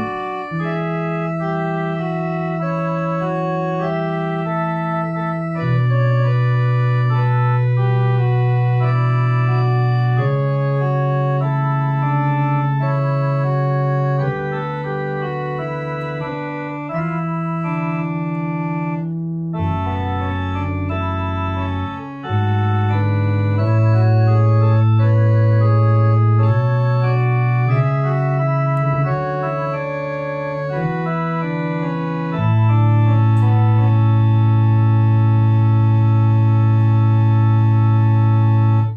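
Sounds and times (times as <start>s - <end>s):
electronic organ chords: 0.0s - 38.9s
organ pedal bass notes: 0.0s - 38.9s.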